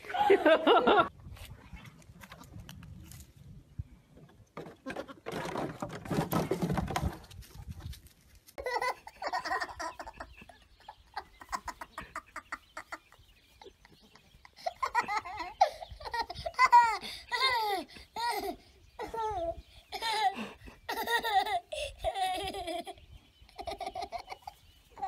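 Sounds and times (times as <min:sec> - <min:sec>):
toddler giggling: 0:08.6 - 0:25.0.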